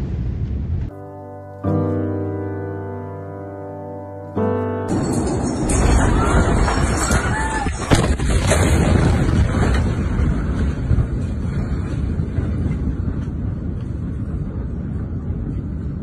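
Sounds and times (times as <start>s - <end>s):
explosion blast wave roar: 4.9s - 15.4s.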